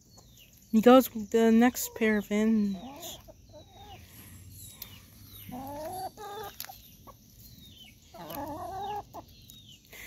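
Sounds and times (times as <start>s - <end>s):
hens clucking: 1.7s - 9.6s.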